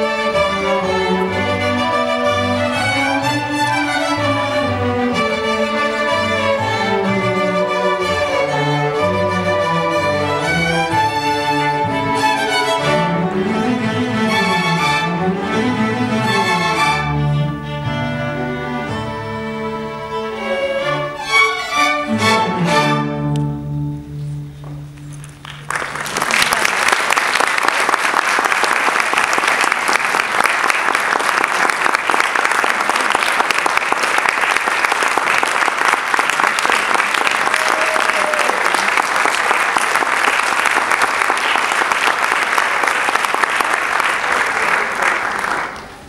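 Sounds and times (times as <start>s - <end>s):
string orchestra chord: 0.0s - 24.3s
audience applause: 25.2s - 46.0s.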